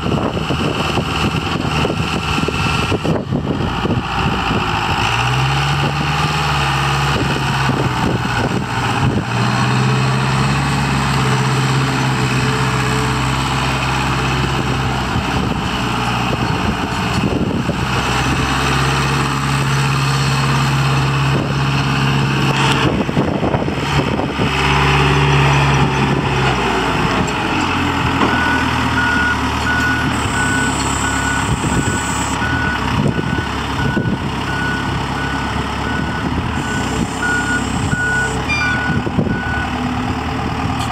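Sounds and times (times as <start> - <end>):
diesel engine running: 0.0 - 40.9
backup alarm beeping: 35.9 - 39.6.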